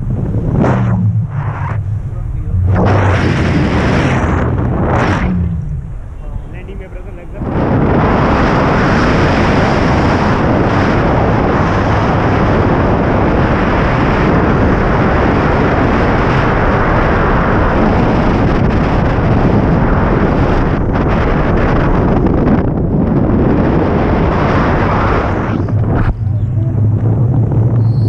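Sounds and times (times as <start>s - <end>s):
wind rushing over microphone: 0.0s - 28.0s.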